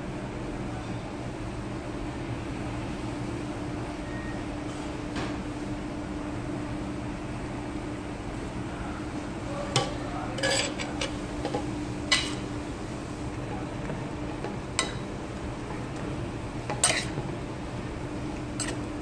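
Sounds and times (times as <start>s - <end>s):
low hum and hiss: 0.0s - 19.0s
metal spoon scraping frying pan: 9.8s - 12.5s, 16.7s - 17.2s, 18.6s - 18.9s.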